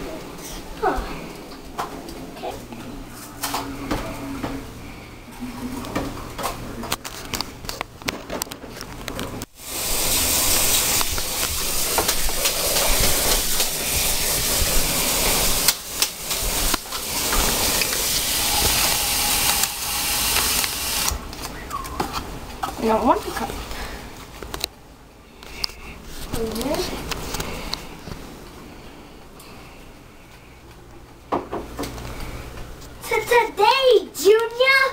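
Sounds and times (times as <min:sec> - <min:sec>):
water running from tap: 0:09.6 - 0:21.1.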